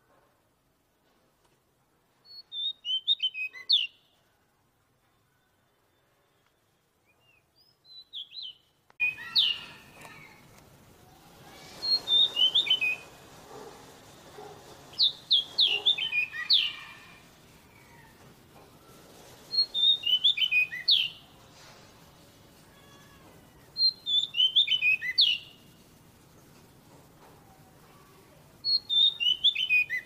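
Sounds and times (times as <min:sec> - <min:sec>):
bird singing whistled notes: 0:02.2 - 0:04.1, 0:05.9 - 0:09.9, 0:11.1 - 0:13.2, 0:14.9 - 0:17.2, 0:19.5 - 0:21.3, 0:23.7 - 0:25.6, 0:28.6 - 0:30.0.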